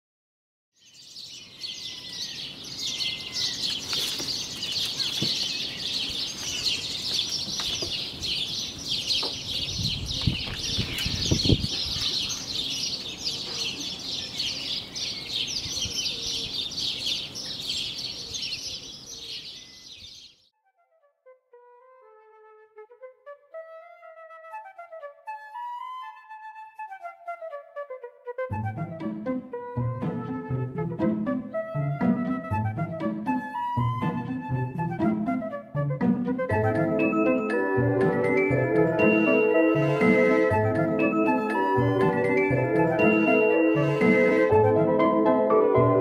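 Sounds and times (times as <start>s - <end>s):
small birds chirping: 0.8s - 20.5s.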